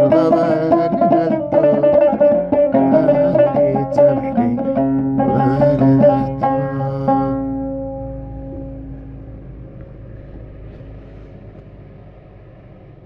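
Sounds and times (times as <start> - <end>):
plucked lute strings ringing: 0.0 - 9.9
faint low rumble: 5.6 - 13.0.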